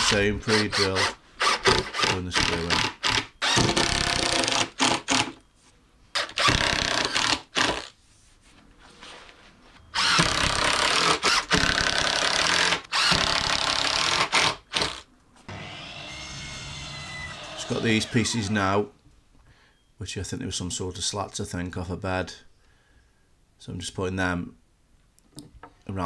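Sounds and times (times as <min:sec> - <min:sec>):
cordless drill driving screws: 0:00.0 - 0:05.4, 0:06.2 - 0:07.9, 0:10.0 - 0:18.7.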